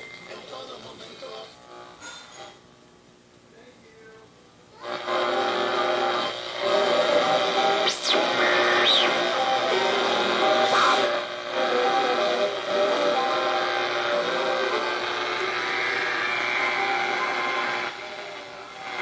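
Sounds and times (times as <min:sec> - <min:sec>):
faint radio station audio: 0:00.0 - 0:02.6, 0:03.4 - 0:19.0
radio static and hiss: 0:07.4 - 0:11.6.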